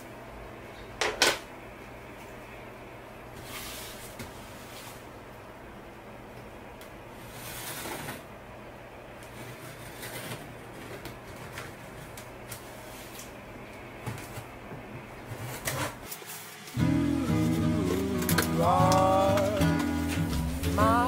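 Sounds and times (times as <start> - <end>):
steady low hum: 16.6 - 21.0.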